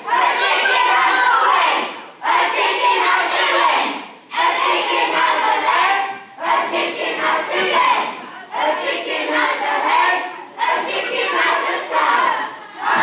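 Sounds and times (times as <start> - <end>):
children singing and chanting: 0.0 - 13.0.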